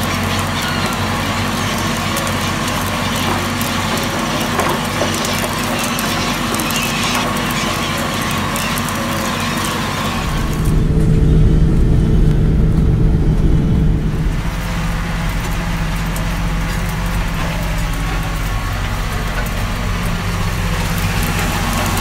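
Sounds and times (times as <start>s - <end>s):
tractor engine running: 8.2s - 22.0s.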